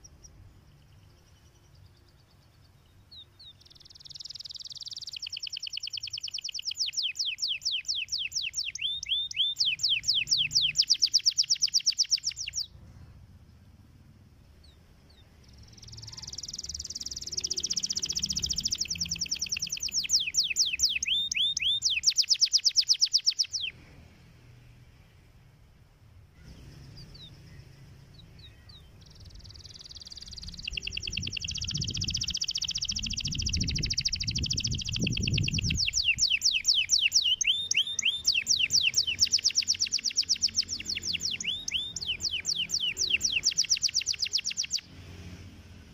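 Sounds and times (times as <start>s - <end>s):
canary singing trills: 0.0s - 12.9s, 14.4s - 23.8s, 26.4s - 45.0s.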